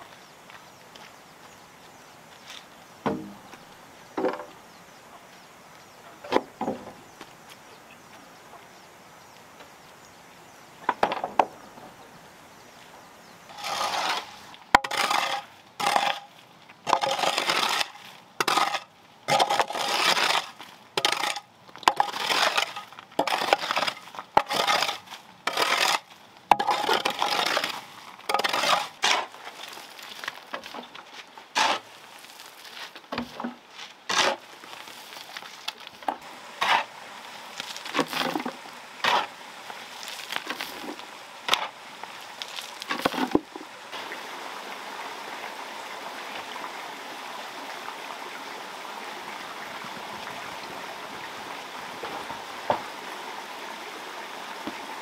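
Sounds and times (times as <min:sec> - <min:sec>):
wood knocking: 0:03.0 - 0:03.5, 0:04.2 - 0:04.5
hoe scraping gravel: 0:13.4 - 0:44.1
broom sweeping dirt floor: 0:13.5 - 0:16.3, 0:22.0 - 0:35.8, 0:36.5 - 0:43.4.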